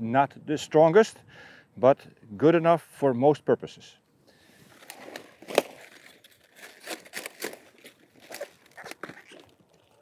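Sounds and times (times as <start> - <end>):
cabbage leaves crackling and snapping: 4.7 - 10.0.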